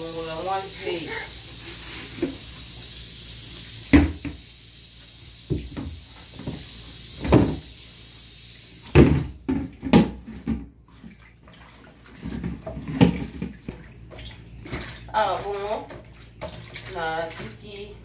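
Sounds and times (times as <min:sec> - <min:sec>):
tap running into basin: 0:00.0 - 0:02.9, 0:03.5 - 0:07.8, 0:08.7 - 0:17.6
hands sloshing fish in water: 0:10.8 - 0:17.8
water splashing: 0:10.8 - 0:18.0.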